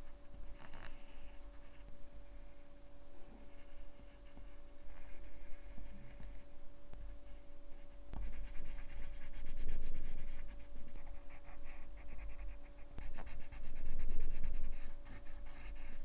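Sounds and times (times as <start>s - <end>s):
pencils scratching on paper: 8.2s - 16.0s.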